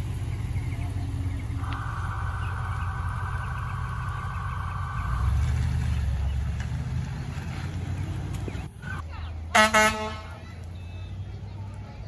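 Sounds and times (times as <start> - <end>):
pickup truck engine rumble: 0.0 - 12.0
high-pitched buzzing tone: 1.6 - 6.0.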